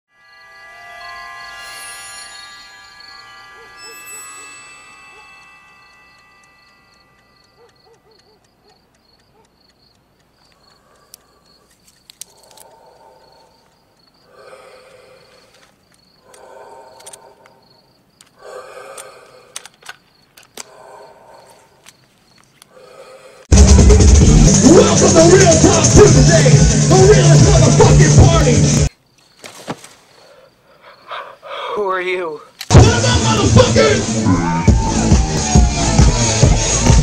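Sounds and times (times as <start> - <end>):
chime-like music: 0.1 - 7.6
crickets chirping: 0.2 - 23.5, 28.0 - 32.8
small clicks: 5.4 - 14.2, 15.4 - 17.6, 18.2 - 20.9.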